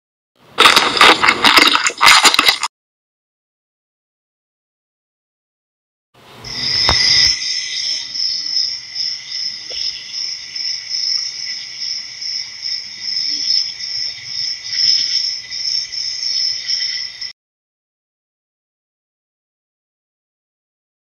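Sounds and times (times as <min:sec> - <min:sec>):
crickets chirping: 0:06.4 - 0:17.3.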